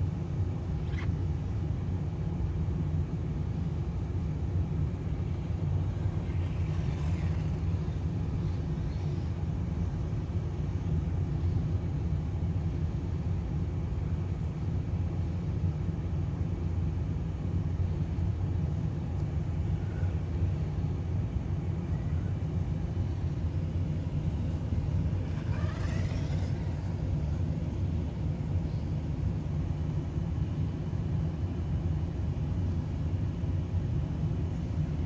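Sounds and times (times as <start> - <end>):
steady low rumble: 0.0 - 35.0.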